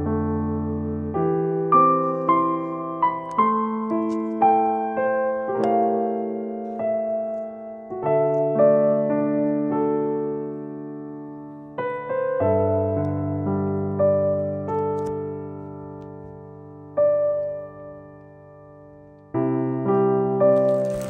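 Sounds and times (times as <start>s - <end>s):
slow piano music: 0.0s - 21.0s.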